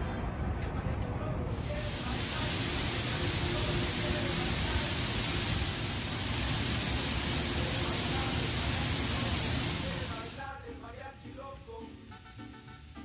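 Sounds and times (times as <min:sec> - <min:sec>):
fountain water splashing on stone: 0:01.6 - 0:10.4.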